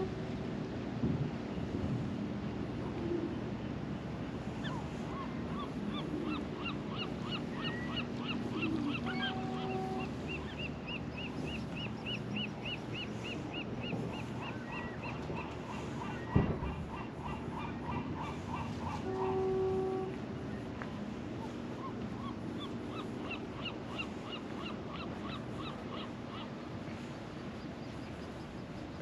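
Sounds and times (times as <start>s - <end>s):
low steady hum: 0.0s - 29.0s
gull calling: 4.6s - 20.1s.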